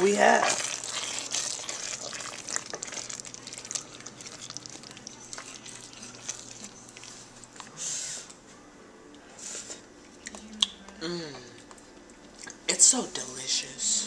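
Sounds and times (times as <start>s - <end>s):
pasta sauce simmering and bubbling: 0.0s - 7.5s
spoon stirring in a pot: 0.0s - 7.7s.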